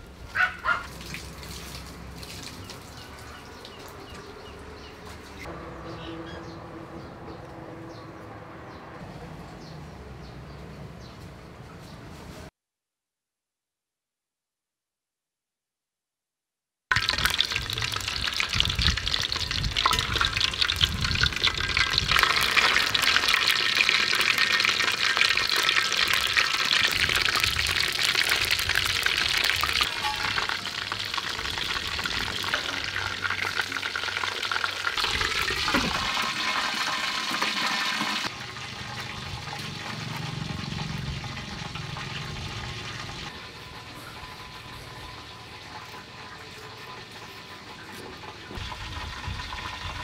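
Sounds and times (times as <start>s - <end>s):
fish sizzling in hot oil: 16.9s - 50.0s.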